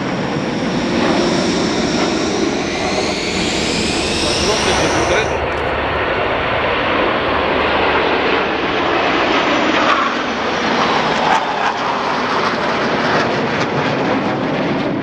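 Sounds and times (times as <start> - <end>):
fighter jets flying past: 0.0 - 6.8.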